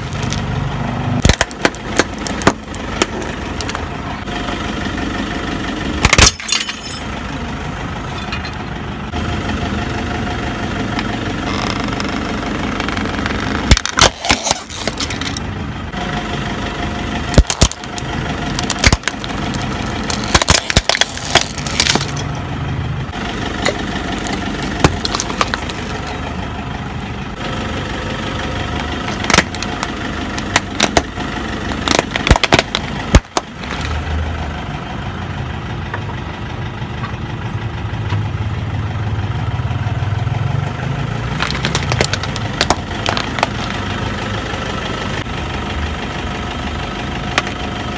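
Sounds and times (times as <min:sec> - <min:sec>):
plastic objects cracking under tyre: 0:00.0 - 0:00.5, 0:01.2 - 0:03.8, 0:11.4 - 0:15.5, 0:17.3 - 0:22.3, 0:23.6 - 0:26.3, 0:29.0 - 0:34.0, 0:41.3 - 0:43.8, 0:47.3 - 0:47.6
car engine running slowly: 0:00.0 - 0:47.9.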